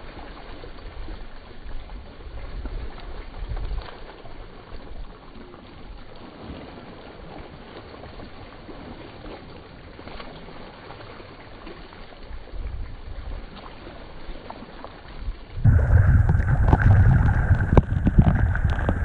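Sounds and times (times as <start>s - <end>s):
wind on microphone: 15.4s - 19.0s
swimmer splashing: 15.6s - 19.0s.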